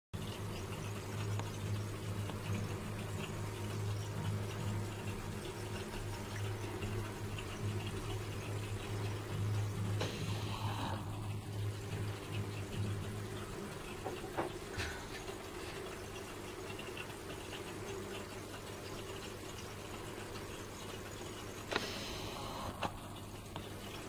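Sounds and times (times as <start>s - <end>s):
aquarium filter humming: 0.2s - 24.0s
moving water: 0.2s - 24.0s.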